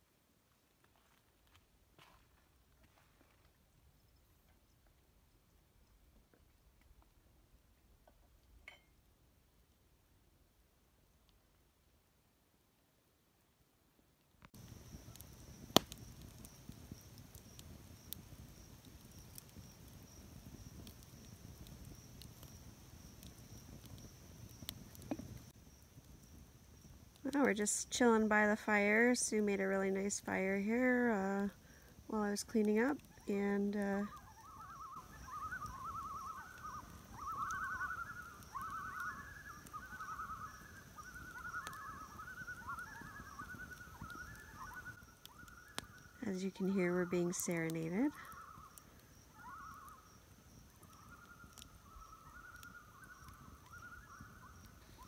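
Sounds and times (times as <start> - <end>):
campfire crackling and popping: 0.0 - 13.2, 14.0 - 55.0
loons calling: 32.1 - 55.0.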